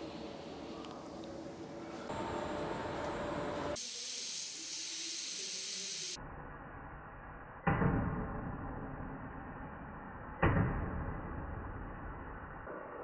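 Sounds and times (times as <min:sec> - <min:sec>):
gas torch flame hissing: 0:03.6 - 0:06.2.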